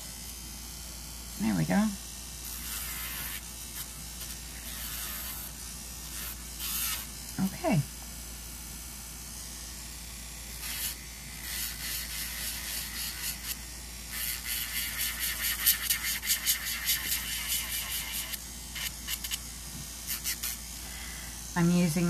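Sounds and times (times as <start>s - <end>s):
electric nail drill grinding: 1.5s - 7.4s, 10.5s - 22.0s.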